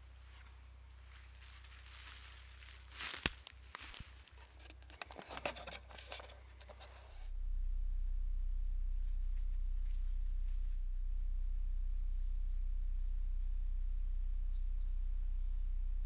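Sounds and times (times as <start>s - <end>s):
footsteps on dry leaf litter: 0.0s - 5.2s
twigs cracking: 1.1s - 6.4s.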